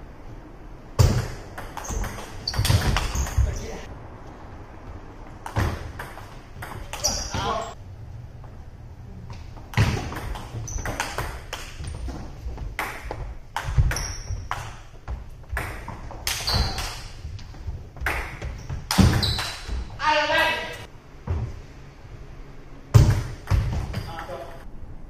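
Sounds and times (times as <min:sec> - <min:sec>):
ping-pong ball rally: 0:01.0 - 0:03.7, 0:05.4 - 0:07.8, 0:09.8 - 0:11.8.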